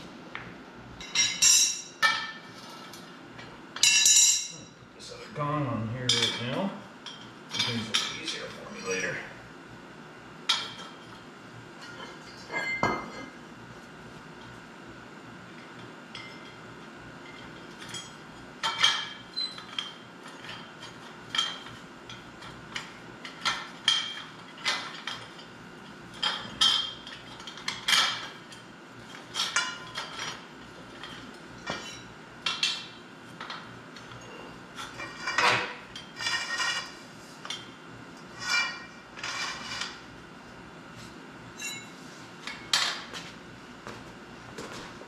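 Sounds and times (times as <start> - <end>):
steel plates clinking and ringing: 1.0 - 2.4, 3.8 - 4.7, 12.3 - 13.3, 41.6 - 41.9.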